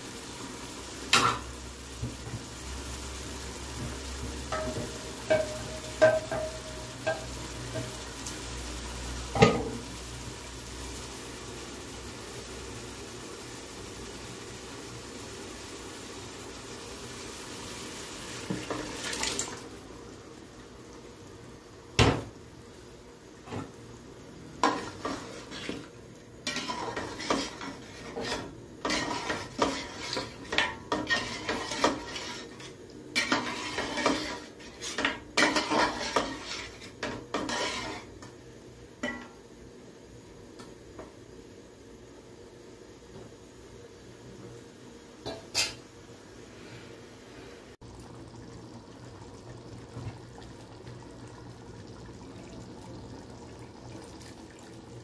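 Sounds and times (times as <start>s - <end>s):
metal spatula scraping pot: 24.6s - 38.2s.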